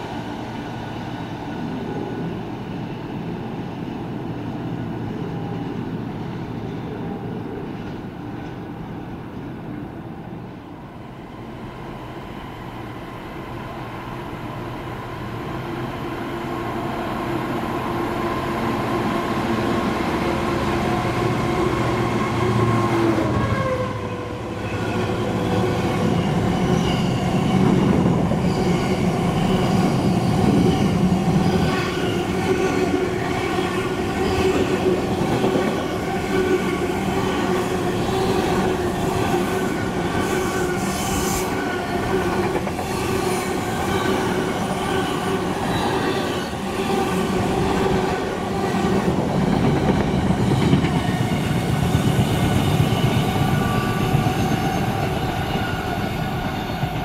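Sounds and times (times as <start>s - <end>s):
train wheels rumbling on rails: 14.7s - 57.0s.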